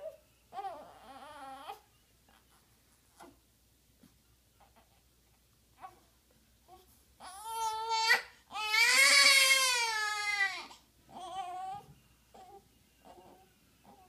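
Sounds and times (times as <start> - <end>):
newborn baby crying: 0.0 - 1.9, 6.7 - 14.0.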